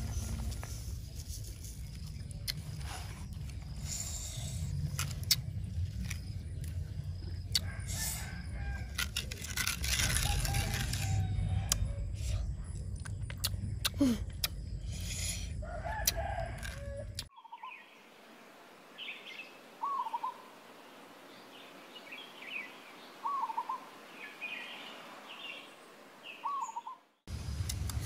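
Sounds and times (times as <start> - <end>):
wet chewing: 4.7 - 8.0
soft bird chirps: 17.2 - 18.1, 21.3 - 27.2
bird warbling call: 19.0 - 20.5, 22.1 - 27.0.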